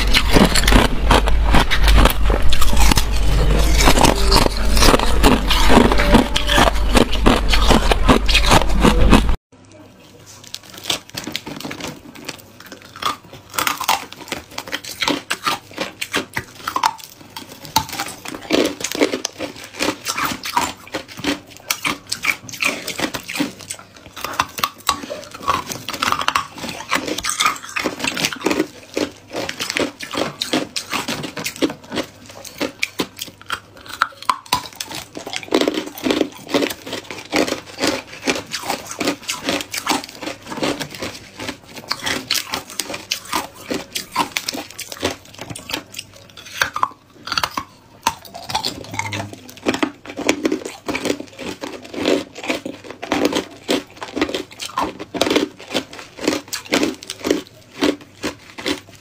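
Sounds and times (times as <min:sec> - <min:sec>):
crunching ice with teeth: 0:00.0 - 0:09.4, 0:10.1 - 0:59.0
plastic bag crinkling: 0:00.0 - 0:46.6.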